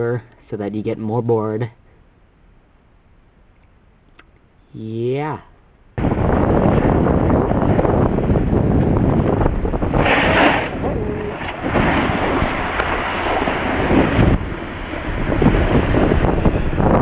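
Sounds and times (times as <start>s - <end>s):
snowboard sliding over snow: 6.0s - 16.9s
wind buffeting microphone: 6.0s - 17.0s.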